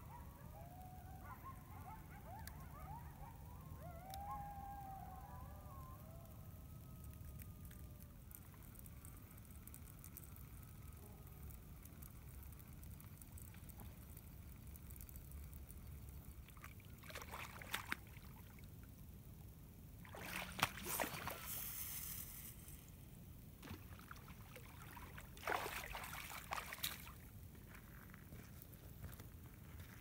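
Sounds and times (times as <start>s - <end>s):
reel clicks: 7.0s - 16.5s
fishing rod swishing: 20.1s - 22.1s
fishing line hissing off reel: 20.4s - 23.0s.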